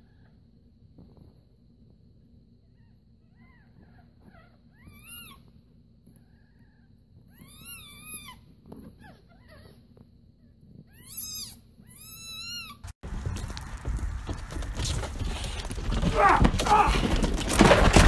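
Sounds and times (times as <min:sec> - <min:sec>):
kittens mewing: 0:16.0 - 0:17.3.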